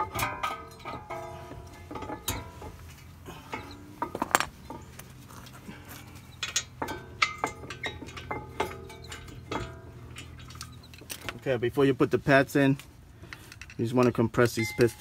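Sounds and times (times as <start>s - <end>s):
metal parts clinking: 3.3s - 11.4s.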